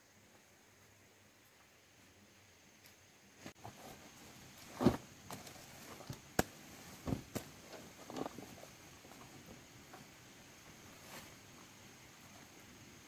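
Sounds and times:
soft thumps of plant material: 4.6s - 8.5s.

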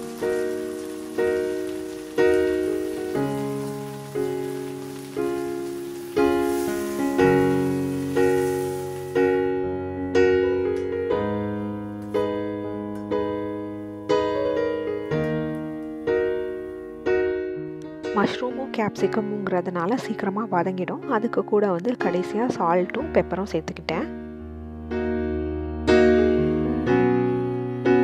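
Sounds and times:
vegetables frying in a pan: 0.0s - 9.6s
soft piano chords: 0.0s - 28.0s.

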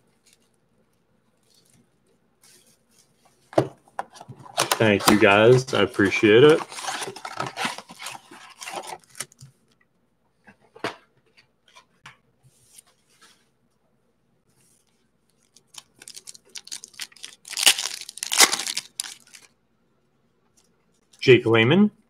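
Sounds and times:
foil wrapper crinkling and tearing: 15.6s - 19.5s.

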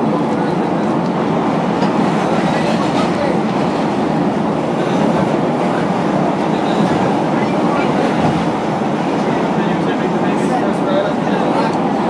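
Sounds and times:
train wheels running on rails: 0.0s - 12.0s.

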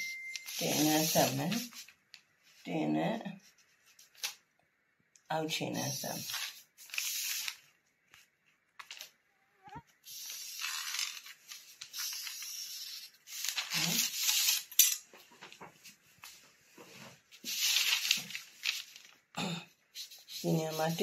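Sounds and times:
paper rustling under ruler: 0.3s - 2.6s, 3.4s - 4.4s, 6.0s - 9.2s, 10.0s - 19.3s.

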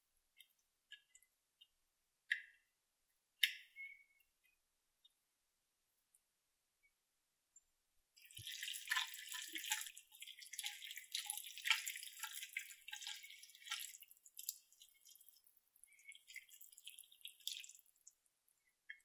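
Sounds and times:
spatula stirring sticky pasta: 8.2s - 18.3s.

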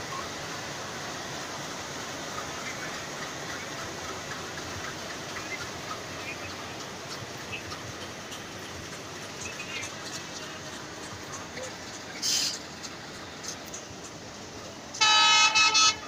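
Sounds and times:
train running on tracks: 0.0s - 16.0s.

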